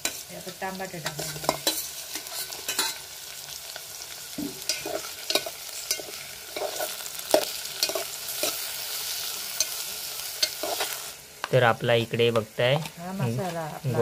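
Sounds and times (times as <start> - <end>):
metal spoon scraping a pot: 0.0 - 3.1, 4.6 - 8.7, 10.4 - 11.0
hot oil sizzling: 0.0 - 14.0.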